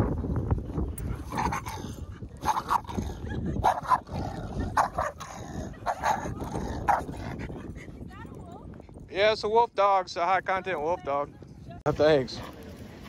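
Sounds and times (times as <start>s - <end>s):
dog barking: 2.4s - 3.0s, 3.6s - 4.1s, 4.7s - 7.3s.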